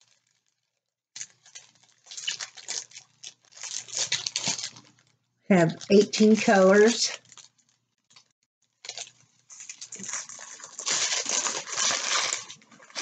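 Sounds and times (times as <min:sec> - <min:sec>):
plastic bags rustling: 0:01.2 - 0:05.0, 0:05.6 - 0:07.7, 0:08.8 - 0:13.0.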